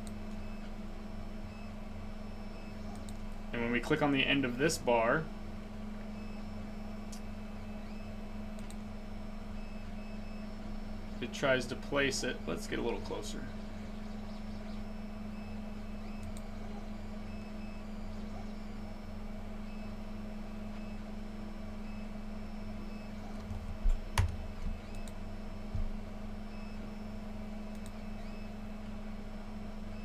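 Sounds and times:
low electrical hum: 0:00.0 - 0:30.0
sharp click: 0:08.6 - 0:08.8, 0:27.7 - 0:28.0.

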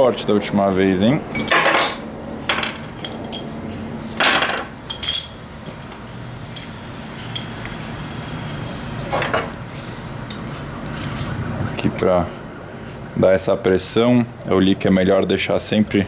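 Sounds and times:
metal parts clinking and scraping: 0:01.3 - 0:03.5, 0:04.2 - 0:07.5.

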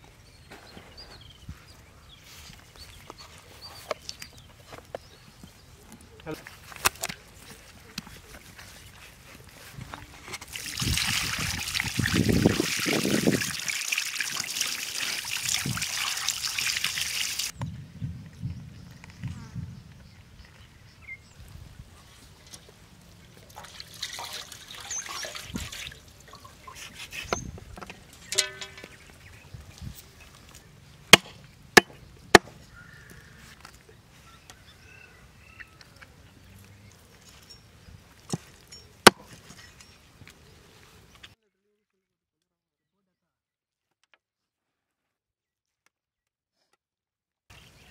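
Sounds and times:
water pouring and splashing: 0:10.4 - 0:17.5, 0:23.3 - 0:27.4, 0:28.0 - 0:29.1.

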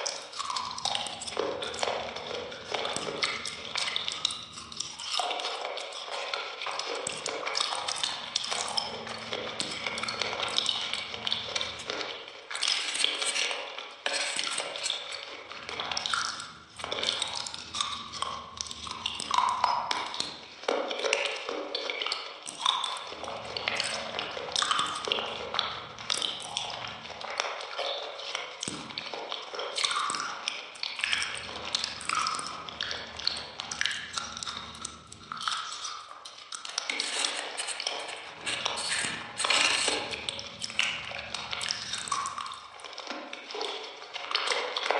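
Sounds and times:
person chewing cake: 0:00.0 - 0:44.9.

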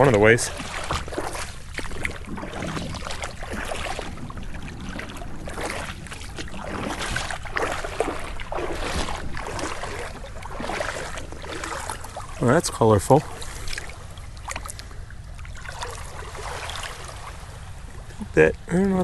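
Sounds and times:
wind on microphone: 0:00.0 - 0:12.4
feet wading through water: 0:00.0 - 0:19.0.

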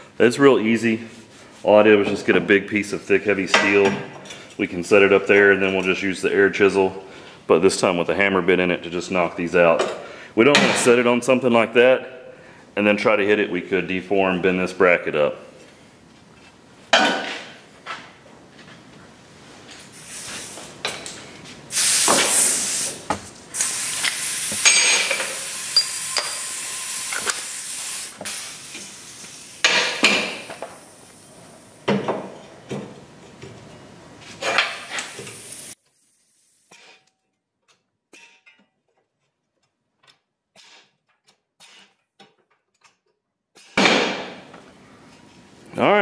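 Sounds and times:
air exhaust hissing: 0:19.9 - 0:20.8, 0:21.7 - 0:31.9, 0:34.6 - 0:36.6.

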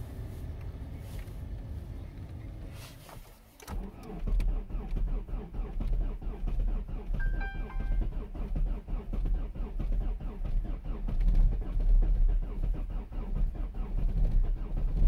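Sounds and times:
diesel engine starting and idling: 0:00.0 - 0:15.0
short electronic tone: 0:07.2 - 0:08.2
low steady hum: 0:07.2 - 0:08.3.

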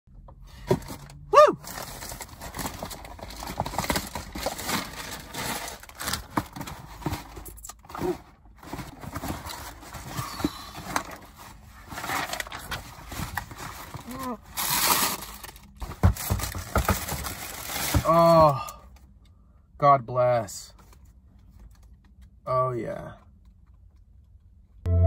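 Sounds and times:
cardboard box handled and opened: 0:00.6 - 0:18.4
tissue paper rustling: 0:01.6 - 0:07.2.

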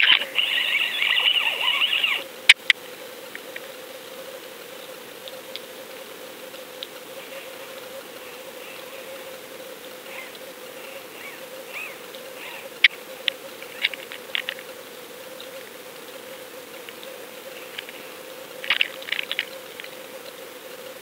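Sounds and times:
underwater hum: 0:00.0 - 0:02.6.

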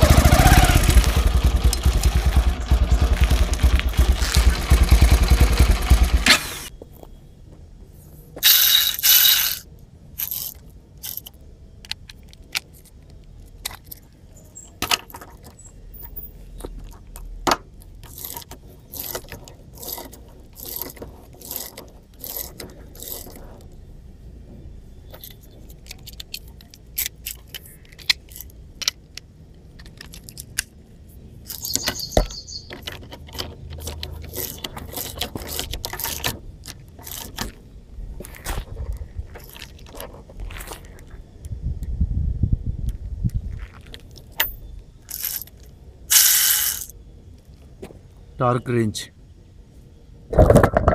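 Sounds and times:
ratchet metal clicks: 0:08.4 - 0:09.6, 0:10.2 - 0:12.9, 0:18.0 - 0:23.4, 0:31.5 - 0:37.5, 0:45.1 - 0:46.9.

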